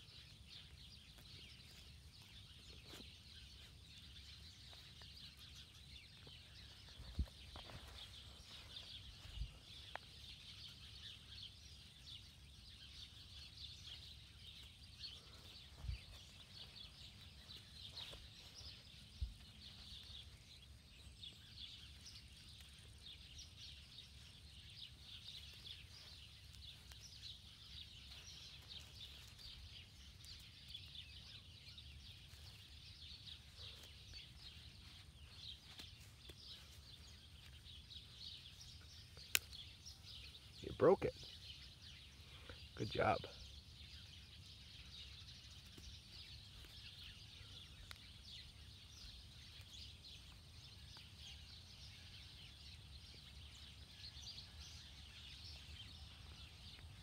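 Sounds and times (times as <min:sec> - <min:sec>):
high-pitched chirping chorus: 0:00.0 - 0:57.0.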